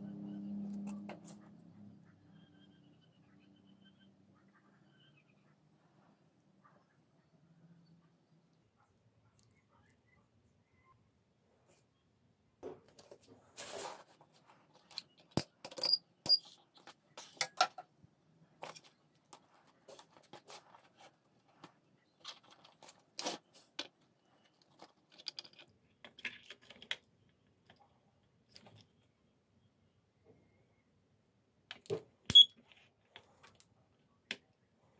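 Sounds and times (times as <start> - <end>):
hands handling small parts: 12.8 - 18.0, 18.6 - 27.8.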